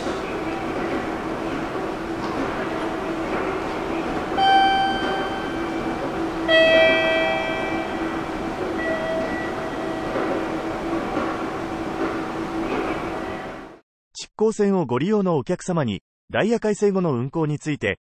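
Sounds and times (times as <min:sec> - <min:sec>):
steady low hum: 0:00.0 - 0:13.8
bell-like announcement chime: 0:04.4 - 0:10.5.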